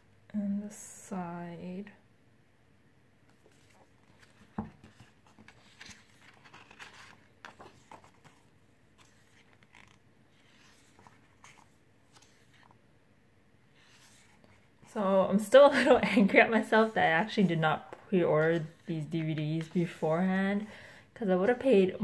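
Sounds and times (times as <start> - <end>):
paper pages rustling: 3.3 - 12.8, 13.8 - 14.9, 15.8 - 20.7
book knocking on wooden table: 4.6 - 4.8.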